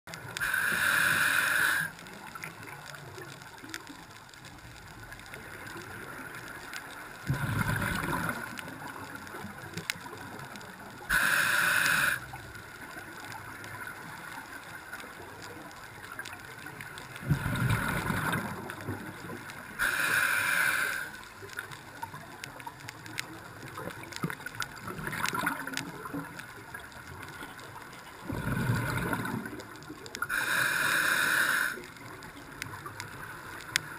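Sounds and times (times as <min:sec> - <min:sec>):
underwater wash: 0:00.1 - 0:33.9
regulator hissing inhalation: 0:00.4 - 0:02.0, 0:11.1 - 0:12.3, 0:19.8 - 0:21.2, 0:30.3 - 0:31.8.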